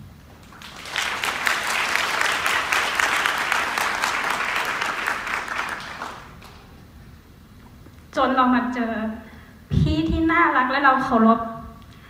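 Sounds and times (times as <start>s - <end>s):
audience applauding: 0.3s - 6.8s.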